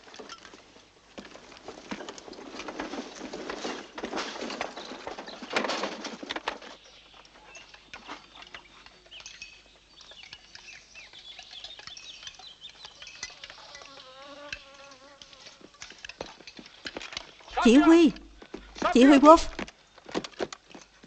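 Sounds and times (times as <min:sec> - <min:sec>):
rustling crackling noise: 0:00.0 - 0:21.0
small birds chirping: 0:06.6 - 0:20.1.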